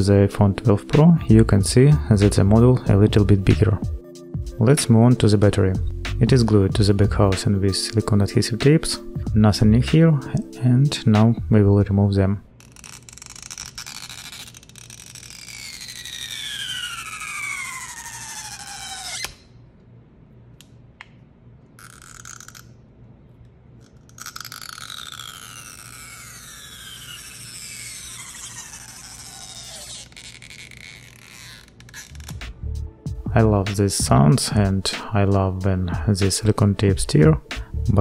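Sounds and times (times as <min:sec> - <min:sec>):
adhesive tape squealing: 0:12.5 - 0:19.6, 0:21.7 - 0:22.9, 0:23.7 - 0:32.6.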